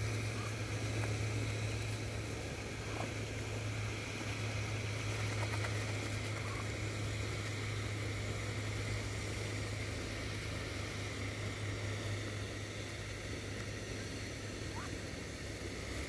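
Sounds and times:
even hiss: 0.0s - 16.0s
steady low hum: 0.0s - 16.0s.

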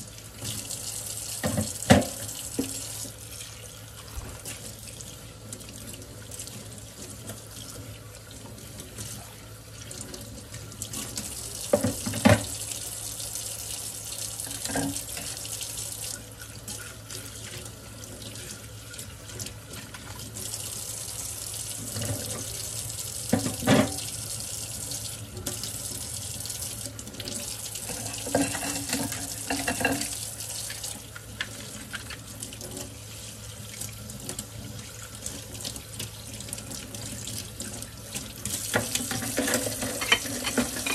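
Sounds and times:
faucet running into steel sink: 0.0s - 40.9s
dishes knocking: 38.8s - 40.9s.

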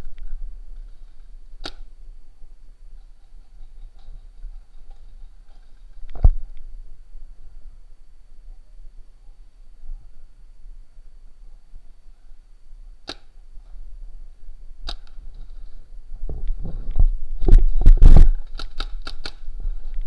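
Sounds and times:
paintball markers firing: 1.6s - 1.9s, 13.0s - 13.4s, 14.8s - 15.2s, 18.1s - 19.5s.

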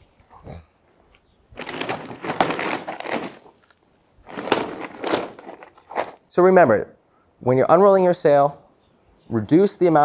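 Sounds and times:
sail cloth crinkling and rustling: 1.5s - 6.3s.

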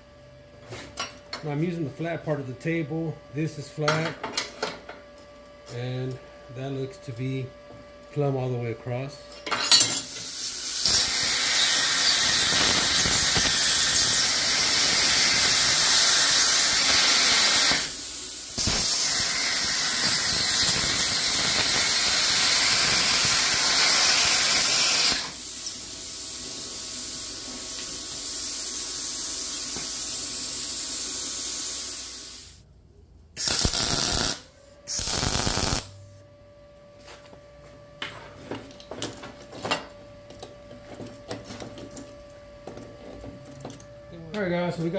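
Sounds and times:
plasma cutter hissing: 10.0s - 32.6s, 33.4s - 35.9s.

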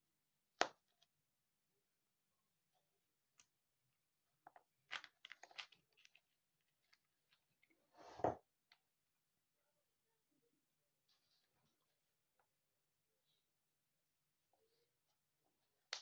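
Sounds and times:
plastic pieces clicking and rustling: 4.5s - 7.7s.

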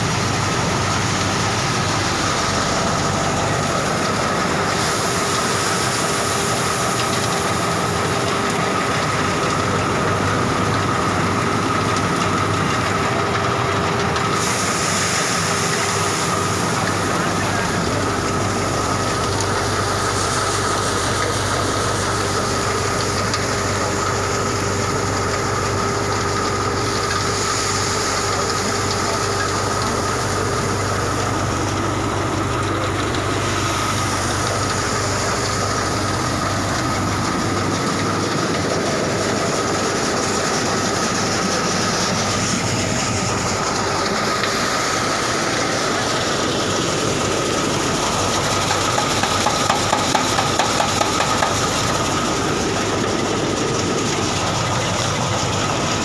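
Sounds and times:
grain thresher rattling: 0.0s - 56.0s
steady machine whine: 0.0s - 56.0s.

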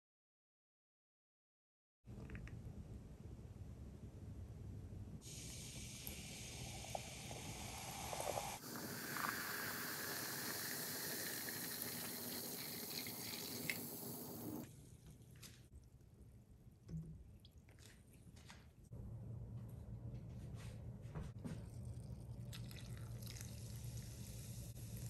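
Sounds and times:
fizz crackles: 5.2s - 14.6s
soda pouring and fizzing: 5.2s - 14.6s, 22.2s - 25.0s
faint steady hiss: 5.2s - 14.8s.

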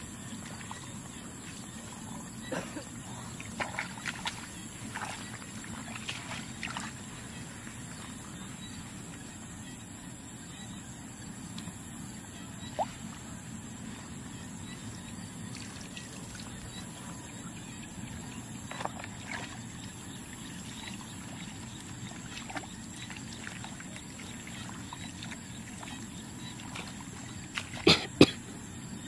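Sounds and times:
water sloshing and splashing: 0.0s - 9.4s, 15.4s - 28.4s.

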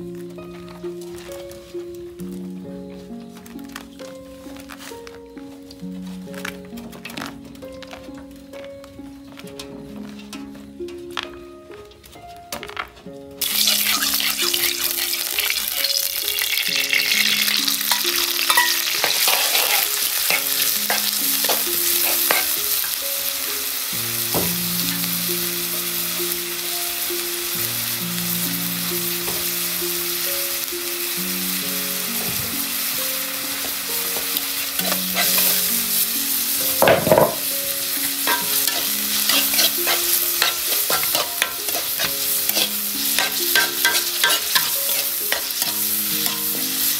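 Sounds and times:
food sizzling in oil: 13.4s - 46.9s
metal ladle scraping wok: 17.1s - 22.6s, 34.4s - 35.8s, 37.2s - 46.9s.

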